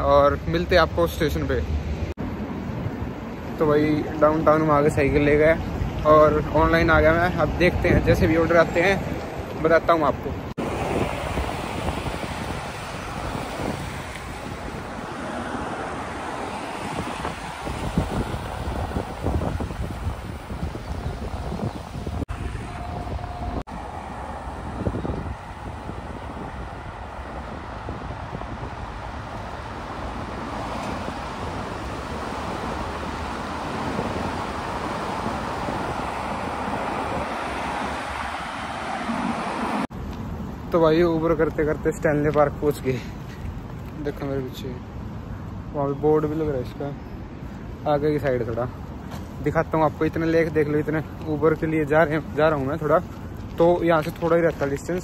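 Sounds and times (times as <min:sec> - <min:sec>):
street traffic: 0:00.0 - 0:55.0
wind buffeting microphone: 0:02.2 - 0:40.0.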